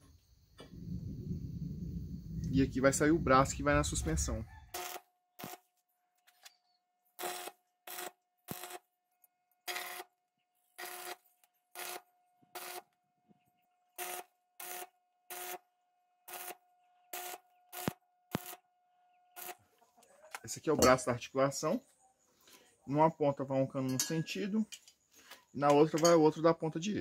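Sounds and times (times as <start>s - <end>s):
welding arc crackling: 7.2s - 8.8s, 17.2s - 18.6s.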